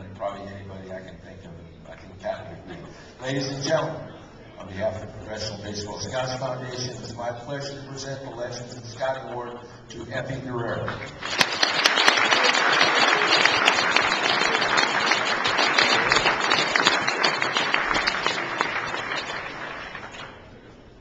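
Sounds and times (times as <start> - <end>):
audience applauding: 11.1 - 20.5.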